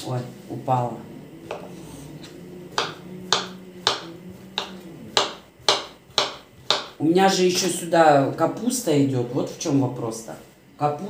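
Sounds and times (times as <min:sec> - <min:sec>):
knife chopping on wooden board: 0:01.5 - 0:01.7, 0:02.7 - 0:07.0.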